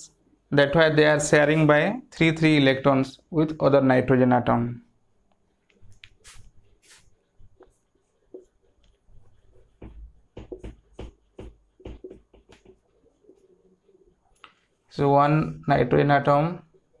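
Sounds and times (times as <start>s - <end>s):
marker pen writing on whiteboard: 5.7s - 14.8s.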